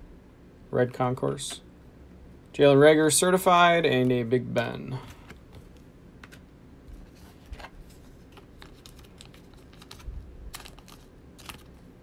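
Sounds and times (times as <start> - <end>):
rustling of card stock: 6.8 - 12.0.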